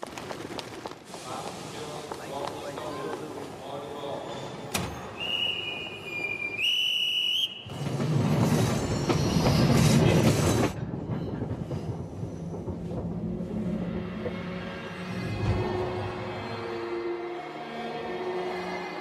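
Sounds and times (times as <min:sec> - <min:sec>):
high whistle: 0:05.1 - 0:07.8
train rumbling: 0:07.2 - 0:16.8.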